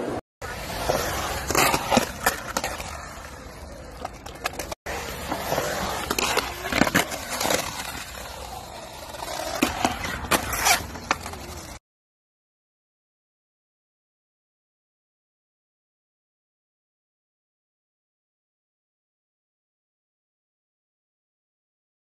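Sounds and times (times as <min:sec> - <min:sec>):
skateboard wheels rolling on concrete: 0:00.0 - 0:11.8.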